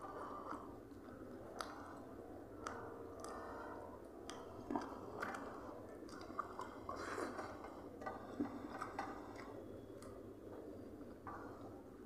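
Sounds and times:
chewing: 0.1s - 10.2s.

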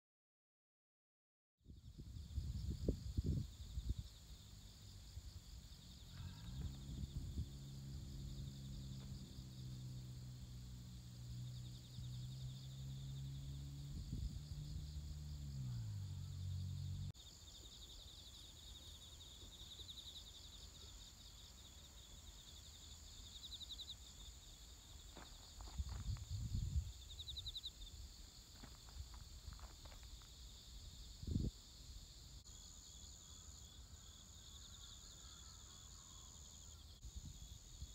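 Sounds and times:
insects trilling: 1.8s - 37.9s
low drone: 4.8s - 17.2s.

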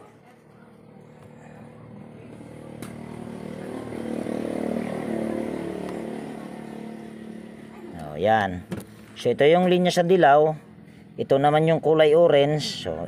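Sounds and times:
motor vehicle passing by: 0.8s - 8.2s.

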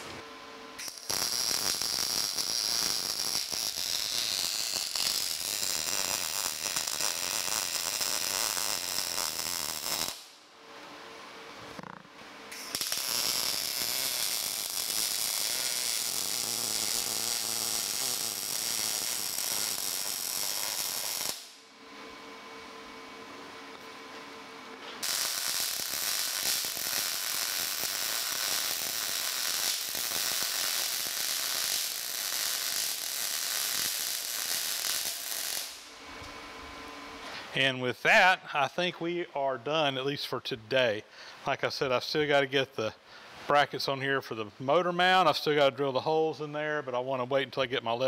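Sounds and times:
welding arc crackling: 0.8s - 10.4s, 11.8s - 21.6s, 25.0s - 36.4s.

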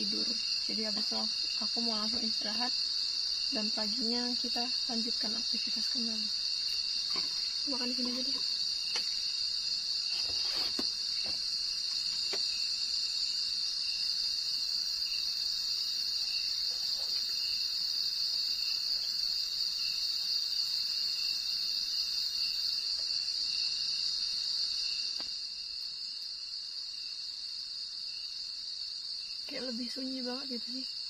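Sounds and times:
crickets and insects trilling: 0.0s - 31.0s.

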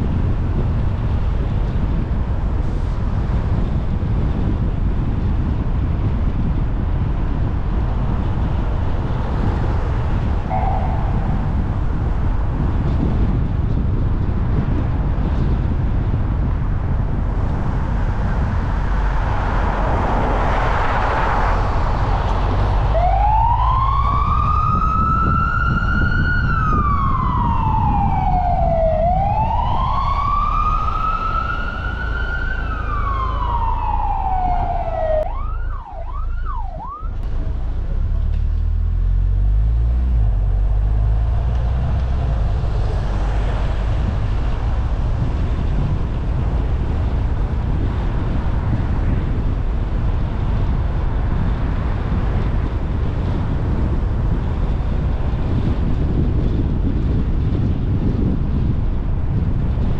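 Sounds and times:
car driving rumble: 0.0s - 59.9s
emergency vehicle siren wailing: 9.5s - 12.7s, 18.6s - 38.4s, 40.1s - 48.4s.

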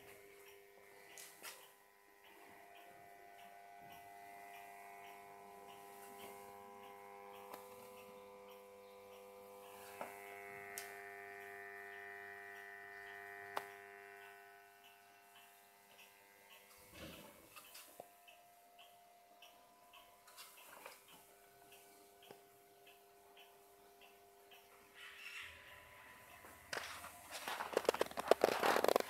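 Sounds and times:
faint regular ticking: 0.0s - 29.0s
sharp clicks: 18.8s - 29.0s
radio hum and held tones: 24.6s - 29.0s.

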